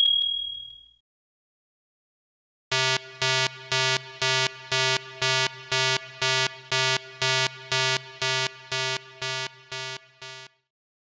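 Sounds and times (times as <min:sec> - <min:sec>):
electronic countdown beeps: 0:02.7 - 0:10.6.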